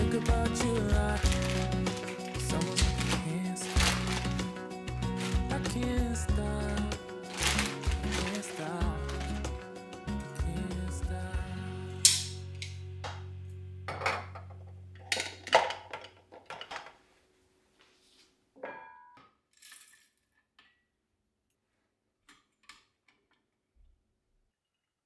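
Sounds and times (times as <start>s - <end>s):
background music: 0.0s - 15.8s.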